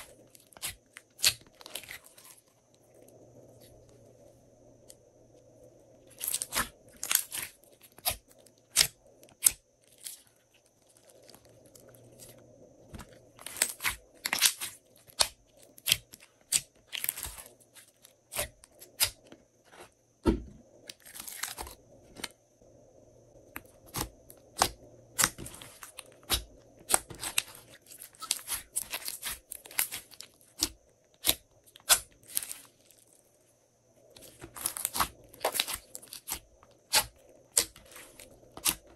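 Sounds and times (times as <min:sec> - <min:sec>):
slime popping and crackling: 0:34.2 - 0:38.9.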